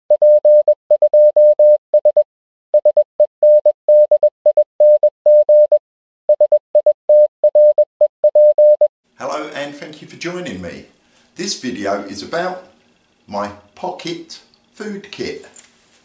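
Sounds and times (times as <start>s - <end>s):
morse code beeps: 0.2s - 8.9s.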